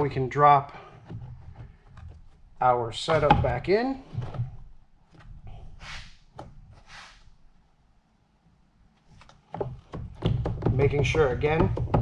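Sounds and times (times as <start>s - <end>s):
plastic scraping hisses: 5.7s - 7.4s.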